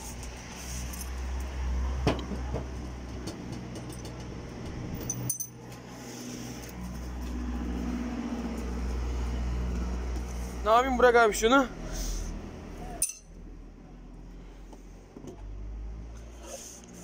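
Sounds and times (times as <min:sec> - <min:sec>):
small metal parts rattling: 0:05.0 - 0:05.6.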